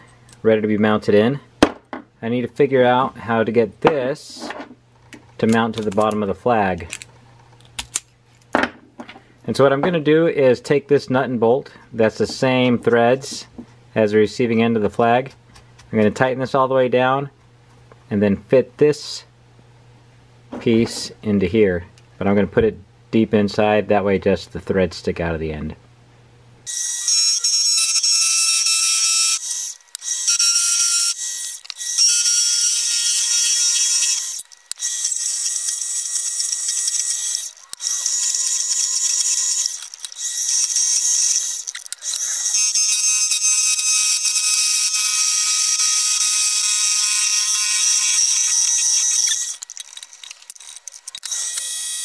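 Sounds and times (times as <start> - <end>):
lathe screeching on metal: 26.7 - 52.0.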